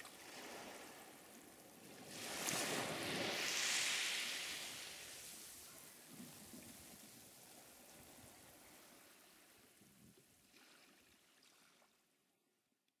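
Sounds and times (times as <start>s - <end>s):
faint sea surf: 0.0s - 9.9s.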